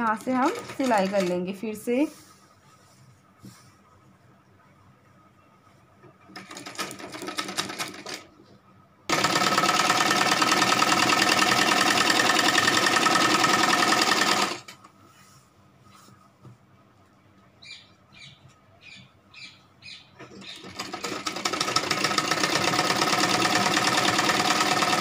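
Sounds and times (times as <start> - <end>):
sewing machine stitching: 0.0 - 1.5, 6.3 - 8.3, 9.1 - 14.8, 20.2 - 25.0.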